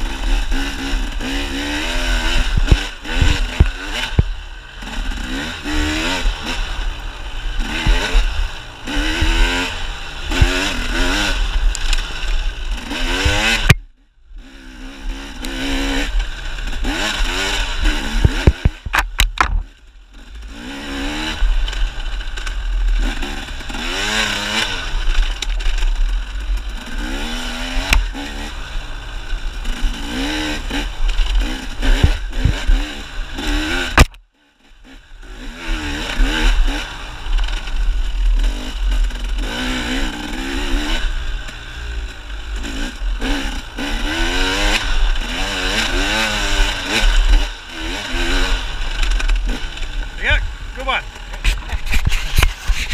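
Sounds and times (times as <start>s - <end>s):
dirt bike engine revving: 0.0s - 52.9s
sharp clicks: 33.9s - 34.2s.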